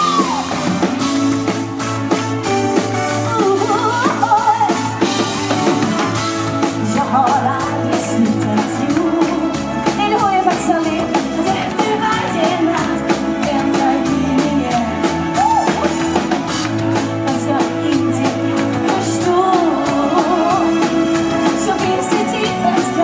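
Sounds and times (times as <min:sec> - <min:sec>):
live pop band playing: 0:00.0 - 0:23.0
steady drum beat: 0:00.0 - 0:23.0
woman singing into microphone: 0:03.3 - 0:05.1, 0:06.7 - 0:16.4, 0:17.0 - 0:23.0.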